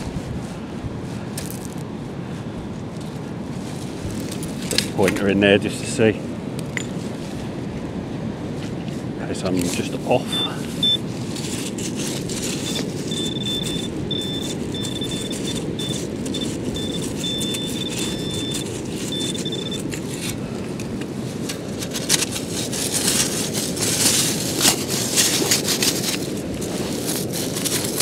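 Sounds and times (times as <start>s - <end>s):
wind rumble on microphone: 0.0s - 28.0s
metal detector pinpointer beeping: 10.3s - 11.0s, 12.6s - 20.0s.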